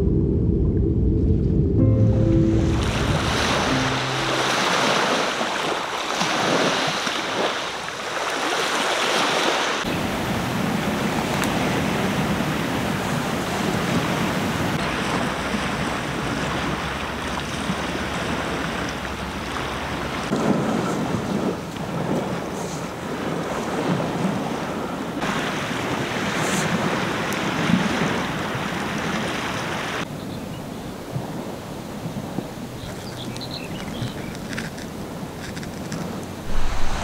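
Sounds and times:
low rumble: 0.0 - 4.5, 36.4 - 37.0
sea waves washing on shore: 2.3 - 30.1, 31.0 - 37.0
wind on microphone: 35.6 - 37.0.

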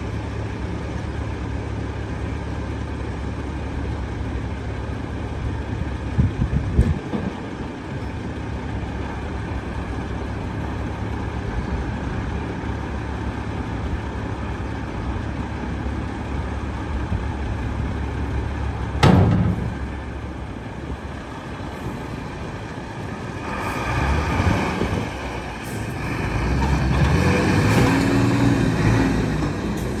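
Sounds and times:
diesel truck engine running: 0.0 - 30.0
tipper body banging on chassis: 18.9 - 20.0.

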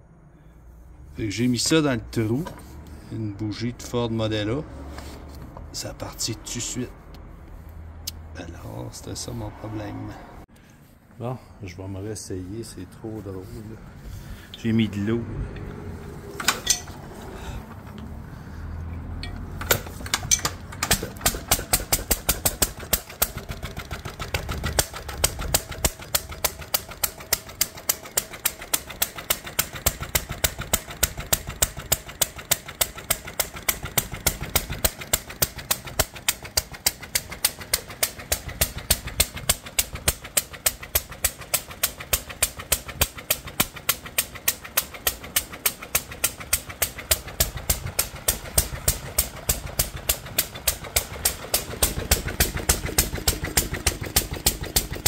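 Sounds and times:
stationary engine running: 13.9 - 55.0.

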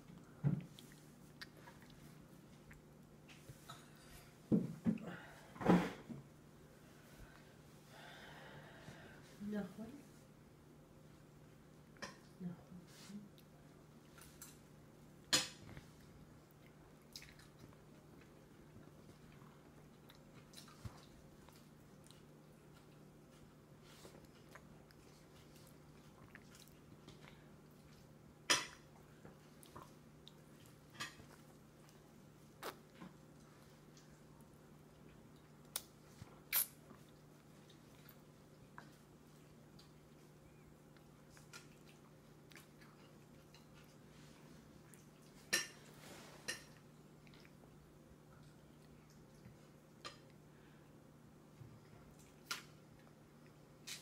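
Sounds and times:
faint steady hum: 0.0 - 54.0
toddler chewing mouth clicks: 36.5 - 38.2.

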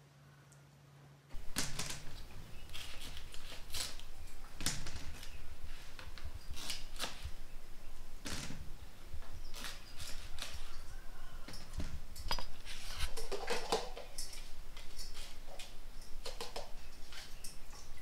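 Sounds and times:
knife scraping banana skin: 2.6 - 4.4, 5.2 - 7.4, 9.4 - 11.4.

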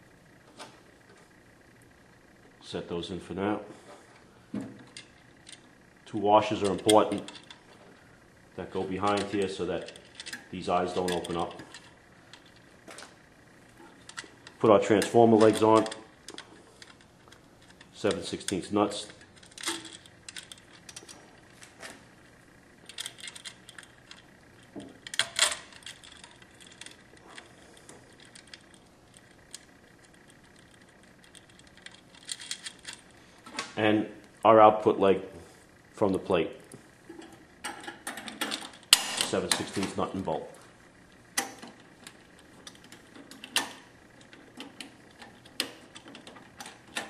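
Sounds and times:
metal nut and bolt clicking: 9.0 - 12.6, 13.9 - 21.2, 22.8 - 33.7, 41.4 - 47.0
small metal hardware clinking: 9.1 - 12.6, 14.0 - 21.2, 22.8 - 33.1.

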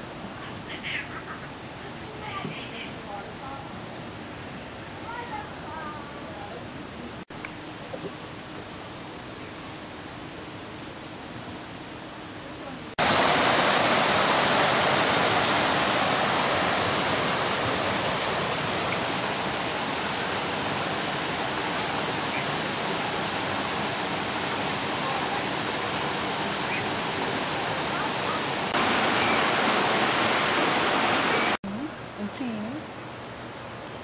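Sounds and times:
stream rushing over rocks: 13.0 - 31.6.

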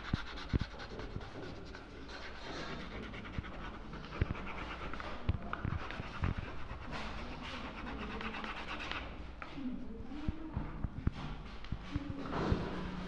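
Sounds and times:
crayon scratching on paper: 0.0 - 9.2.

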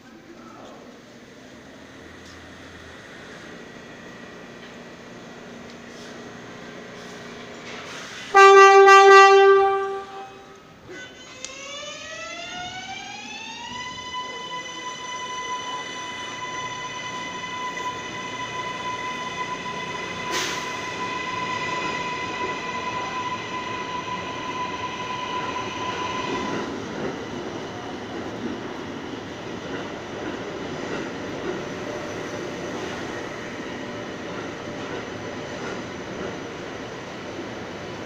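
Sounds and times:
subway train motors whining: 0.0 - 38.0
wheels rumbling on rails: 0.4 - 38.0.

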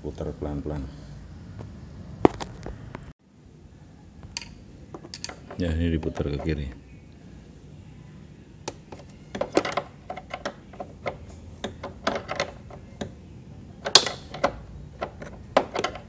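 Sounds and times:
wrench metal clicks: 4.3 - 5.6, 13.8 - 16.0.

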